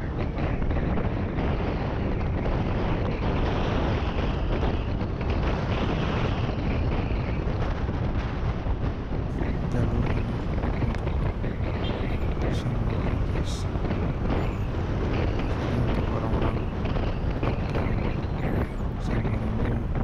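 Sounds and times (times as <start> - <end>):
wind rushing over microphone: 0.0 - 20.0
scooter engine and road noise: 9.3 - 20.0.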